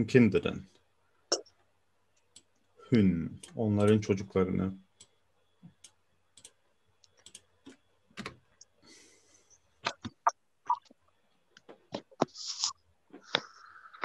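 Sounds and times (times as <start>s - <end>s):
keyboard and mouse clicks: 5.0s - 8.8s.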